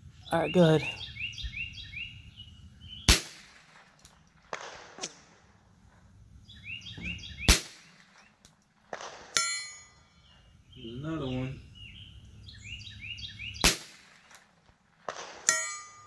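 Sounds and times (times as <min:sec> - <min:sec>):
small birds chirping: 0:00.0 - 0:03.4, 0:06.3 - 0:08.7, 0:09.8 - 0:14.6
rifle shots: 0:03.1 - 0:05.6, 0:07.4 - 0:09.4, 0:13.6 - 0:15.6.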